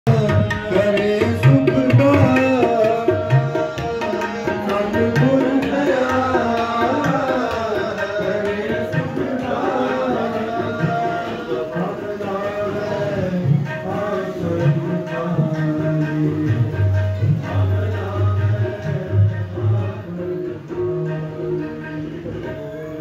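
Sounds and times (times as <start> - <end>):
person singing a hymn: 0.1 - 16.4
held melodic tones: 0.1 - 23.0
tabla drums: 0.1 - 23.0.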